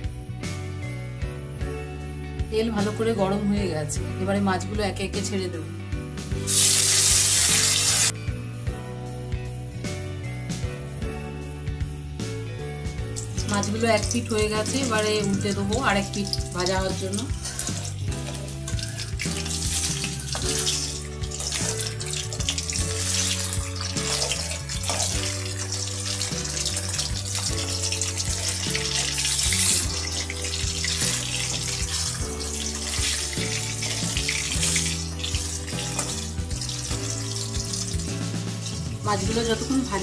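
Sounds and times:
background music with bass line: 0.0 - 40.0
fish sizzling in hot oil: 6.4 - 8.2, 13.2 - 40.0.

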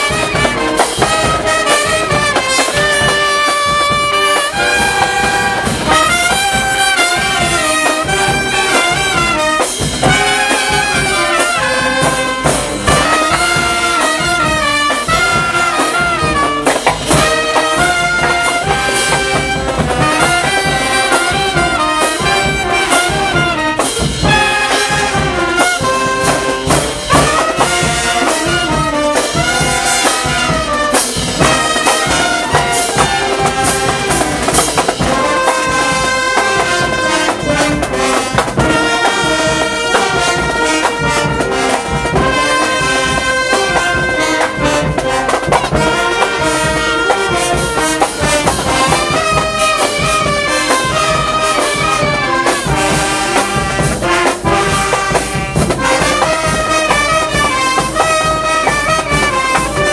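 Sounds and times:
percussion steady beat: 0.0 - 59.9
trumpets and horns: 0.0 - 59.9.

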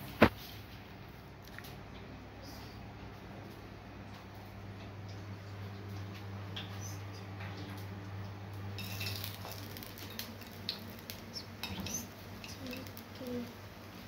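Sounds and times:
food frying in oil: 3.0 - 14.0
metal spoon clinking on frying pan: 8.8 - 9.4.

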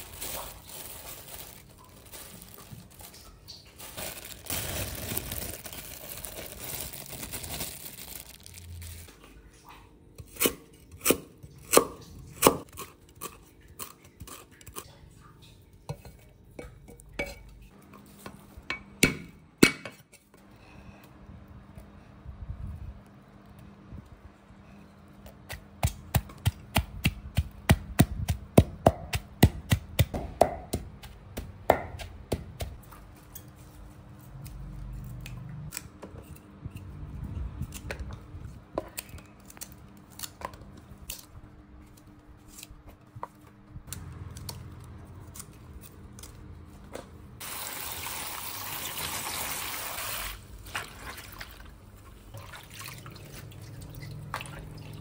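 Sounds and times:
pestle pounding in a mortar: 25.5 - 32.8
water splashing in a bowl: 47.4 - 55.0.

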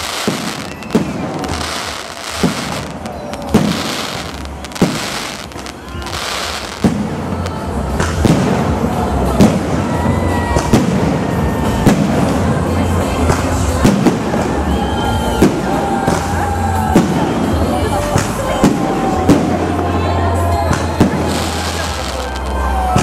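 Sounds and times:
firework shells bursting: 0.0 - 7.2
crackling hiss of fireworks: 0.0 - 23.0.

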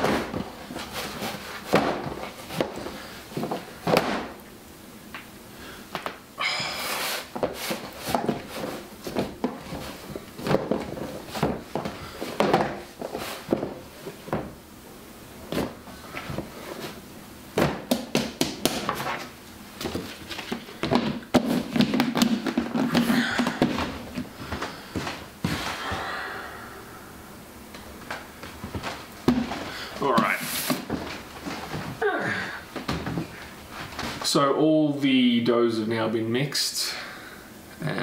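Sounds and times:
dough tub knocks and thuds: 17.6 - 19.2, 20.8 - 24.3.

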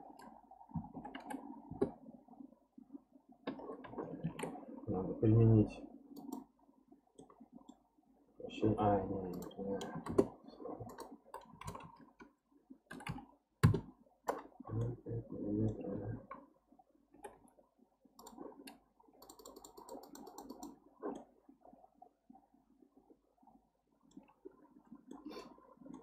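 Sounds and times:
keyboard key taps: 12.9 - 14.4.

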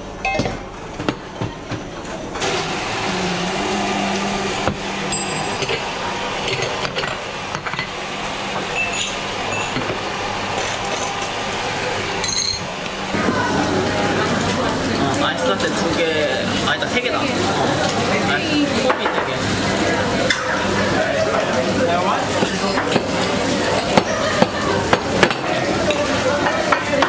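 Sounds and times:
coffee machine running: 2.0 - 27.0
cups and saucers clinking: 5.1 - 7.9, 12.2 - 13.3.

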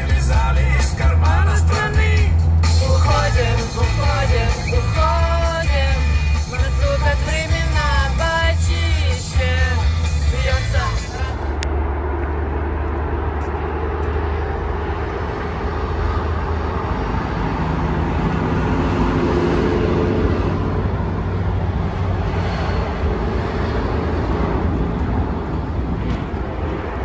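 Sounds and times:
highway traffic noise: 0.0 - 27.0
vehicle passing: 0.0 - 27.0.

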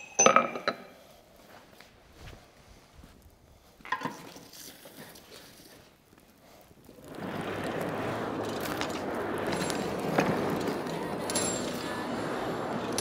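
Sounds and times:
forge blower rushing air: 6.9 - 13.0.

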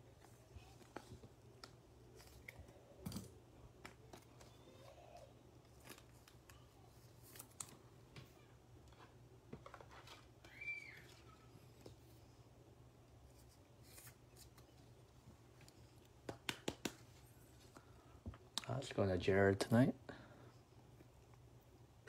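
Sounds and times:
cards and plastic rustling: 0.1 - 12.1, 13.3 - 16.1.

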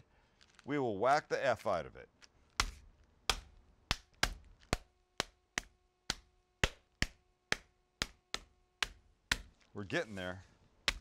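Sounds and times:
pot thudding on meat: 2.6 - 9.6.

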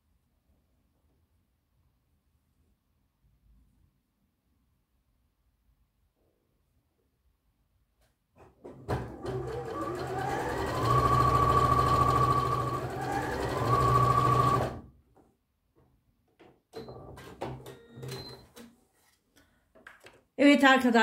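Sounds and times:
sewing machine motor whine: 8.9 - 14.8.

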